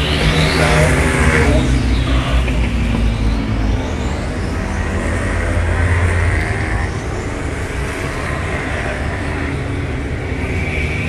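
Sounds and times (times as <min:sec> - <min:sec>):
motorcycle engines racing: 0:00.0 - 0:11.0.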